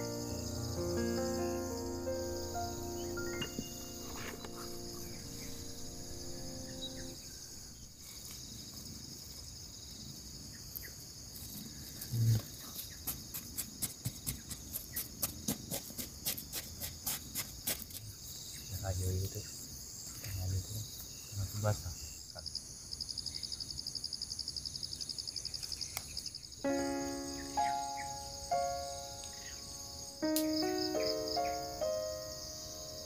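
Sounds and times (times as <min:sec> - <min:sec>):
background music: 0:00.0 - 0:07.6, 0:26.6 - 0:33.0
crickets and insects chirping: 0:00.0 - 0:33.0.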